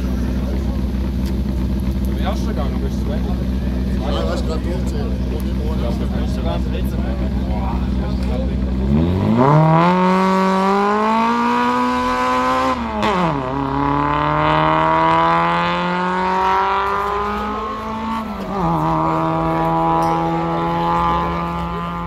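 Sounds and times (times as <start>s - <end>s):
car engine accelerating through gears: 8.2s - 22.0s.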